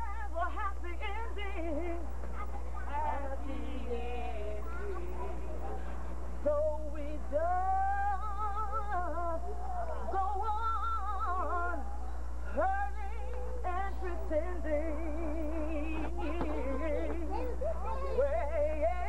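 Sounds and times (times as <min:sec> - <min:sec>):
steady low hum: 0:00.0 - 0:19.0
girl singing with vibrato: 0:06.4 - 0:19.0.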